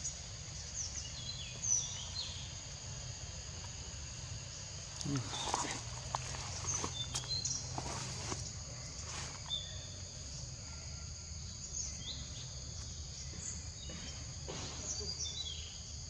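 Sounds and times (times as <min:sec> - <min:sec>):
insect chorus drone: 0:00.0 - 0:16.0
soft rustles: 0:05.2 - 0:09.6.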